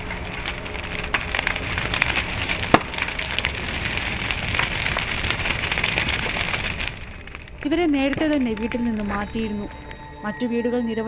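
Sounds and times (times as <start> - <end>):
loud crack: 0.0 - 8.5
burning timber popping: 0.0 - 10.1
fire crackling: 0.0 - 11.0.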